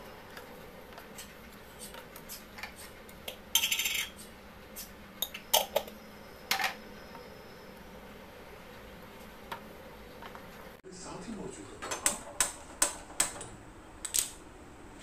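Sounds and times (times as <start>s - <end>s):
spoons clinking against bowl: 3.5s - 4.2s.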